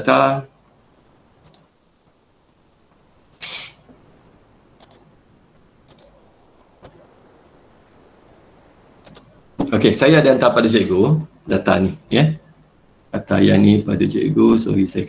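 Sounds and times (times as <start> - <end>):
mouse and keyboard clicks: 1.4 - 1.7, 4.8 - 5.1, 5.9 - 6.1, 9.0 - 9.3
short burst of hiss: 3.4 - 3.9.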